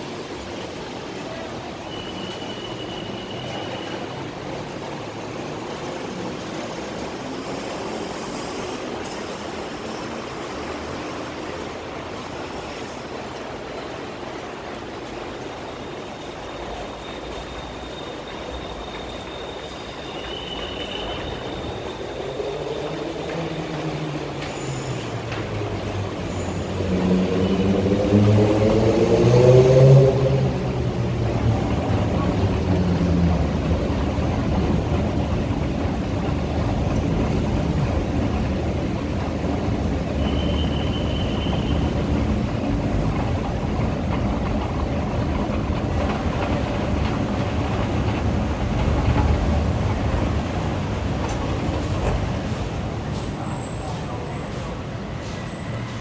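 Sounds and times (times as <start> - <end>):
city traffic noise: 0.0 - 56.0
vehicle pulling away: 25.5 - 33.7.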